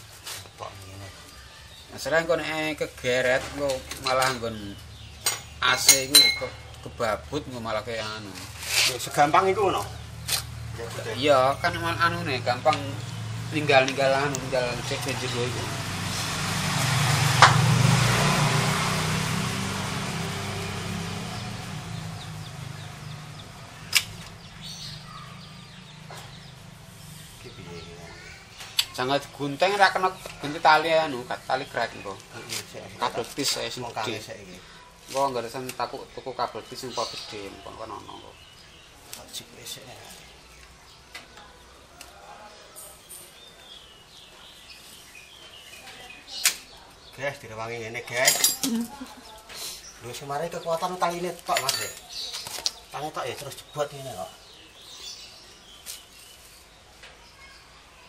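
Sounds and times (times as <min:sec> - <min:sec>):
vehicle engine hum: 0:09.2 - 0:28.4.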